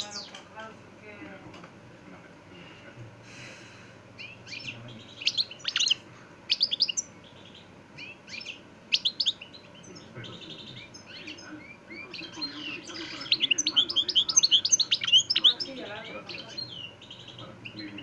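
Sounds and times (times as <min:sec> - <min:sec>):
finch twittering and trilling: 0:00.0 - 0:00.5, 0:04.1 - 0:18.0.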